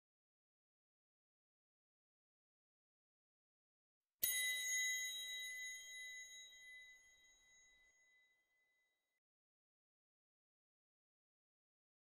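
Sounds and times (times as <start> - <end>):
bell-like chime ringing: 4.2 - 8.8.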